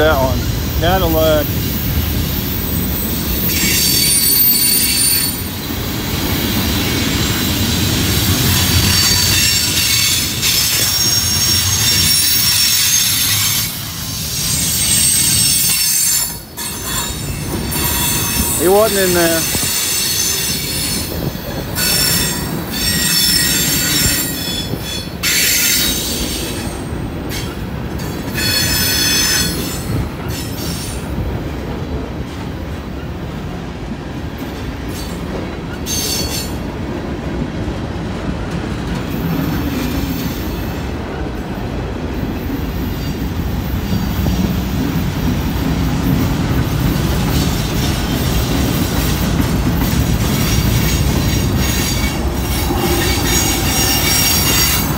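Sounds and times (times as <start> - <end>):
train wheels rumbling on rail: 0.0 - 54.9
high-pitched wheel squeal: 8.9 - 13.6, 14.3 - 18.7.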